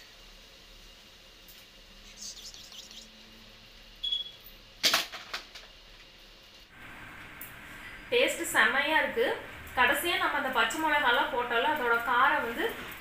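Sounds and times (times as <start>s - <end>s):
mouth smacks and clicks: 2.1s - 3.1s.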